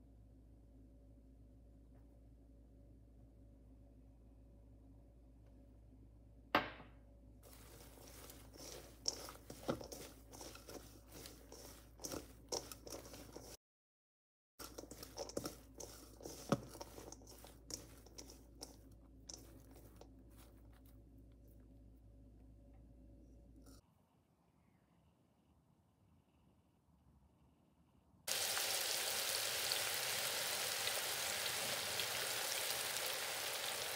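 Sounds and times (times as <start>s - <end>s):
shallots rustling in a steel bowl: 7.5s - 13.6s, 14.6s - 21.0s, 28.3s - 33.9s.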